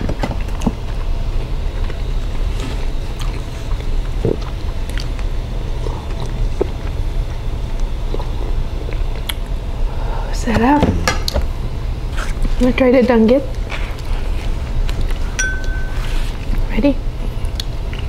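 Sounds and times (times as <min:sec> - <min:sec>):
person chewing food: 0:00.4 - 0:09.5.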